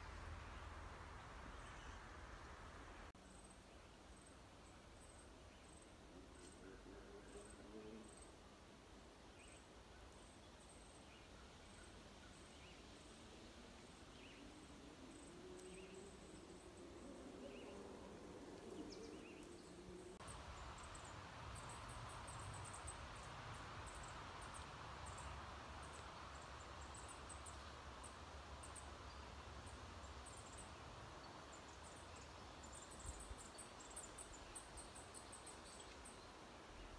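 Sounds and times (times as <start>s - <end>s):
wind in trees: 0.0s - 36.9s
insects chirping: 13.7s - 36.2s.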